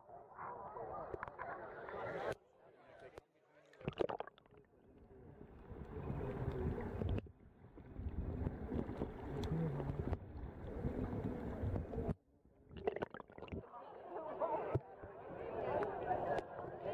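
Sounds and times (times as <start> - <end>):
muffled underwater rumble: 5.0 - 12.2.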